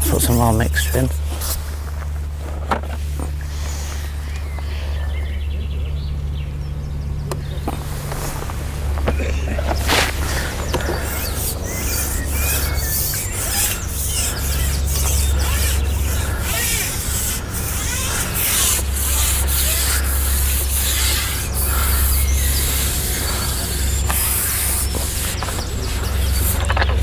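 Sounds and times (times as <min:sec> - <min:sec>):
bird chirps: 0:09.0 - 0:16.8, 0:20.8 - 0:27.0.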